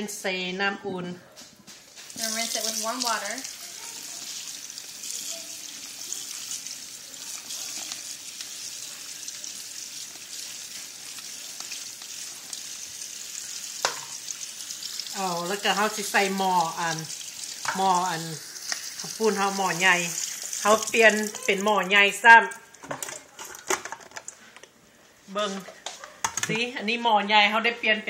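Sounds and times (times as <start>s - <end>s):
tap water running: 2.0s - 24.4s
person speaking: 17.7s - 22.6s.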